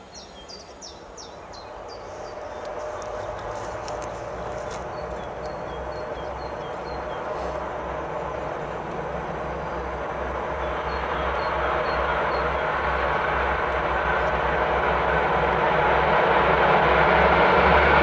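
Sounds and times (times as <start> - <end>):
diesel locomotive engine drone: 0.0 - 18.0
small bird chirping: 0.1 - 7.3.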